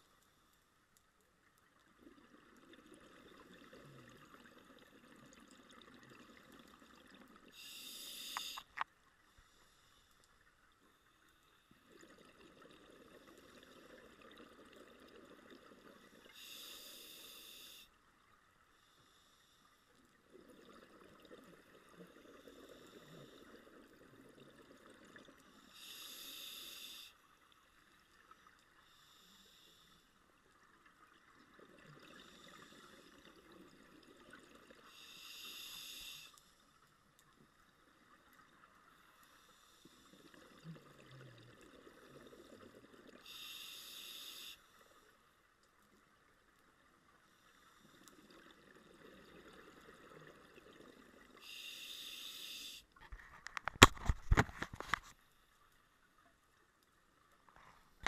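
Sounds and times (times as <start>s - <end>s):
regulator inhale hiss: 7.5s - 10.2s, 16.2s - 18.0s, 18.8s - 19.9s, 25.5s - 27.4s, 28.8s - 30.2s, 34.8s - 36.8s, 43.2s - 45.2s, 51.3s - 53.0s.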